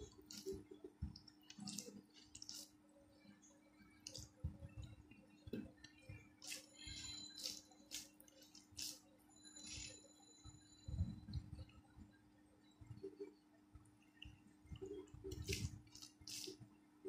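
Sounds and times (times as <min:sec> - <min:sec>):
faint steady hum: 0:00.0 - 0:17.0
fingers squishing wet rice: 0:00.1 - 0:02.8, 0:05.8 - 0:09.0, 0:15.3 - 0:16.6.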